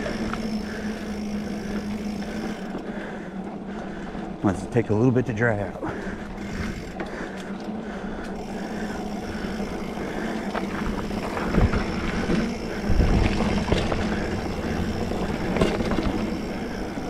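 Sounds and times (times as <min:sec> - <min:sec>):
bike tyre and drivetrain noise: 0:00.0 - 0:17.0
low thuds over bumps: 0:10.5 - 0:16.3.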